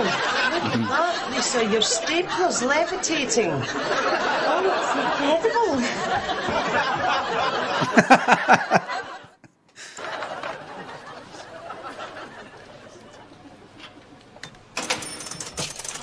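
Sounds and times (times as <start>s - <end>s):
man laughing heartily: 0.0s - 1.1s, 5.8s - 12.6s.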